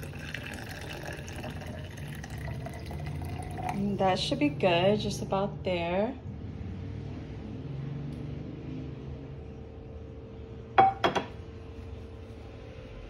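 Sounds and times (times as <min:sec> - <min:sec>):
faint steady hum: 0:00.0 - 0:07.2
kitchenware clinks: 0:10.8 - 0:11.4.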